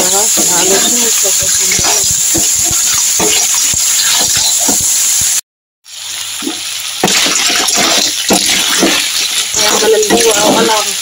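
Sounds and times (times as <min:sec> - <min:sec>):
snails sizzling in hot oil: 0:00.0 - 0:11.0.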